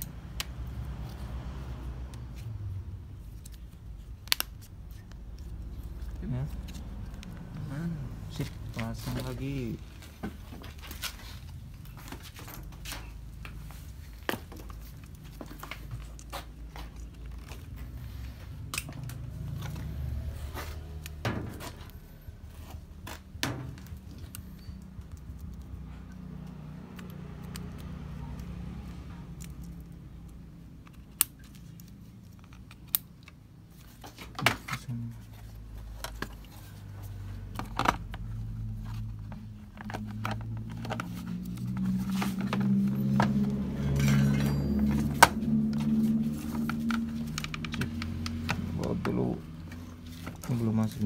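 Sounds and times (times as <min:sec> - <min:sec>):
hands rustling and scraping plastic: 0:02.1 - 0:25.8, 0:29.3 - 0:51.0
wire connectors clicking: 0:03.3 - 0:07.4, 0:39.0 - 0:49.2.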